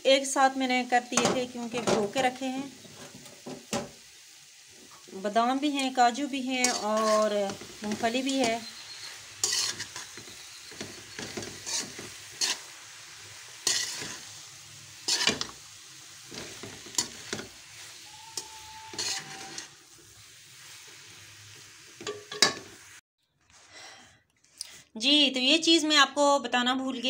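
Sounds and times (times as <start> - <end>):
faint sizzle: 0.0 - 23.0
spoon scraping metal pot: 6.6 - 12.7, 13.6 - 14.2, 15.1 - 15.6, 18.2 - 19.8.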